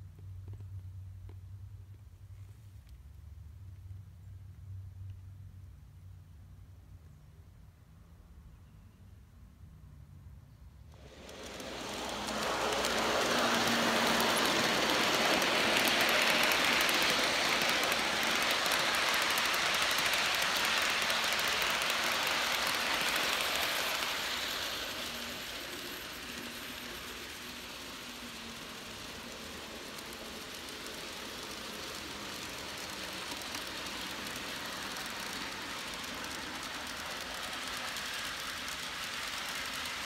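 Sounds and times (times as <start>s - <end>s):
model train wheels rushing on rails: 10.8s - 40.0s.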